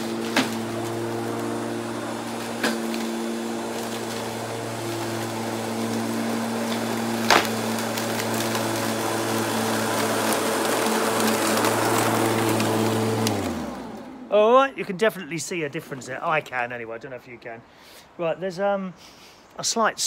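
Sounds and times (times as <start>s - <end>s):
electric lawnmower running: 0.0s - 14.4s.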